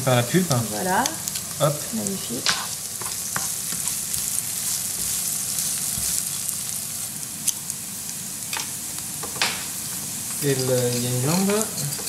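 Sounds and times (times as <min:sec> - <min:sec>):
onions sizzling in oil: 0:00.0 - 0:12.0
spatula stirring: 0:00.6 - 0:07.0.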